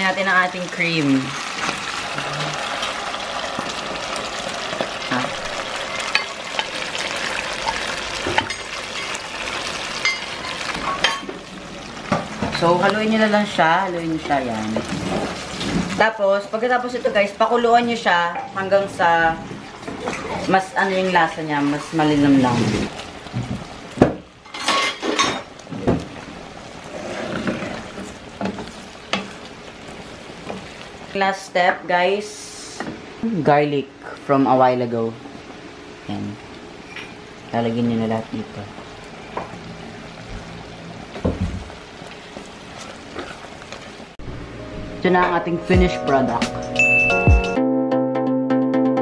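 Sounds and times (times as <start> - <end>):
sauce sizzling in a frying pan: 0.0 - 18.9, 20.5 - 33.1
sauce sloshing and simmering: 25.6 - 31.2.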